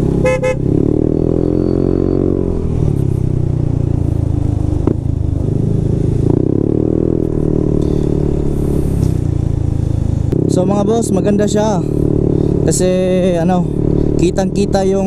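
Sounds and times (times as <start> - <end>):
scooter engine running: 0.0 - 1.2.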